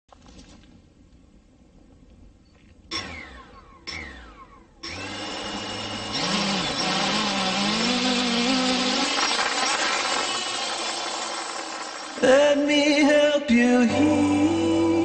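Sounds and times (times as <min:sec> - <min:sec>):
quadcopter propellers whining: 0:02.9 - 0:12.3.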